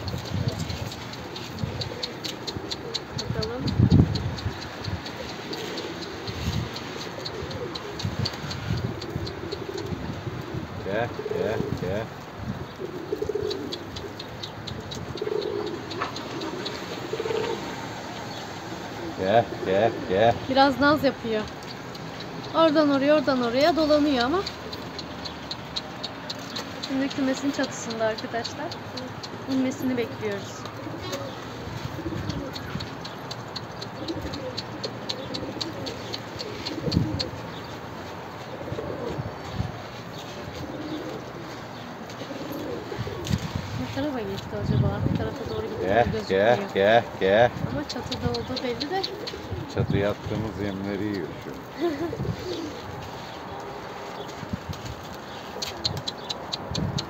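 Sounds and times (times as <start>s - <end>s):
high ticks: 0.0s - 18.4s, 19.9s - 38.9s, 39.9s - 51.8s, 52.4s - 57.0s
pigeons cooing: 0.0s - 57.0s.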